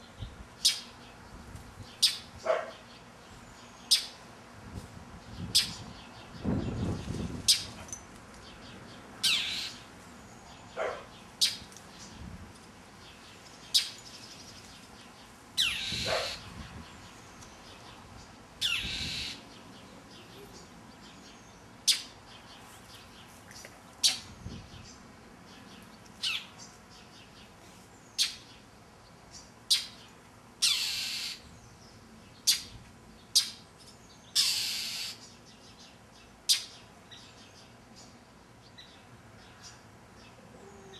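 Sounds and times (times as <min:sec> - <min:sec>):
bird alarm calls: 0:09.2 - 0:09.8, 0:15.6 - 0:16.5, 0:18.6 - 0:19.4, 0:30.6 - 0:31.4, 0:34.3 - 0:35.2.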